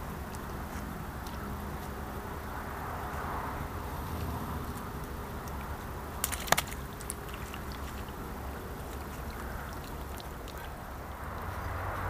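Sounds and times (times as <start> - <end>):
water splashing and dripping: 0.0 - 12.0.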